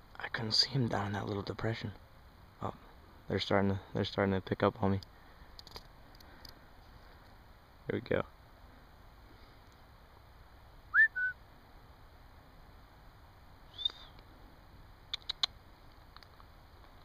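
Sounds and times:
faint high chirp: 10.9 - 11.4, 13.7 - 14.2
human whistle: 10.9 - 11.4, 13.7 - 14.2
quick clicks: 15.1 - 16.5.

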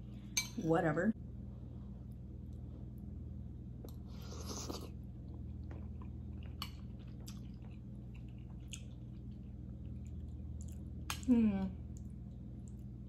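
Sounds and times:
steady low hum: 0.0 - 13.0
quiet chewing: 3.8 - 13.0
spoon slurp: 4.1 - 4.9.

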